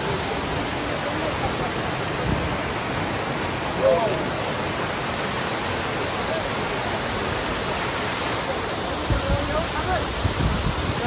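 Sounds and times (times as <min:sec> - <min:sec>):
water rushing over rocks: 0:00.0 - 0:11.0.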